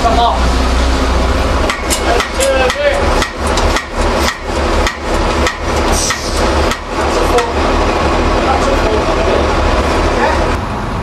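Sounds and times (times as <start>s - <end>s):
hammer blows on metal: 1.6s - 7.6s.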